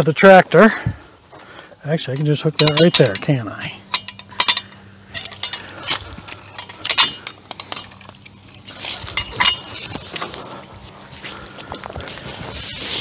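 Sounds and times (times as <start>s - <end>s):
metal hook clinking and rattling: 2.0s - 8.2s, 8.9s - 10.3s.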